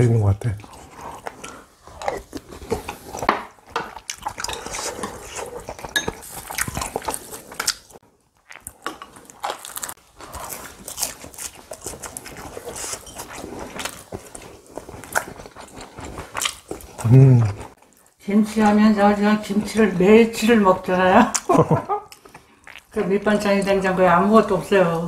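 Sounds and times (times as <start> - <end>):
chewing: 0.6 - 18.8, 21.3 - 23.1.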